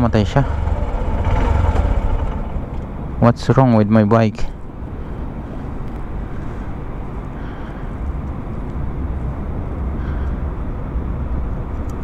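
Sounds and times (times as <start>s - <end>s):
motorcycle engine idling: 0.0s - 3.2s.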